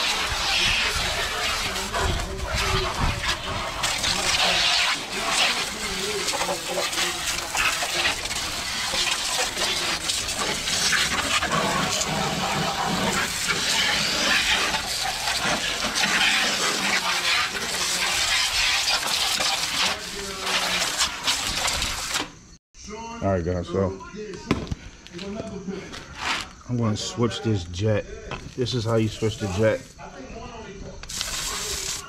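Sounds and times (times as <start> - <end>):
water spray hissing and splashing: 0.0 - 22.3, 28.6 - 29.9, 31.0 - 32.0.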